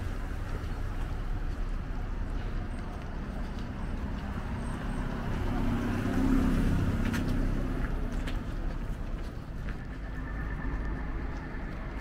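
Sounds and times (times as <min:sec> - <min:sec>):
car passing: 0:03.9 - 0:12.0.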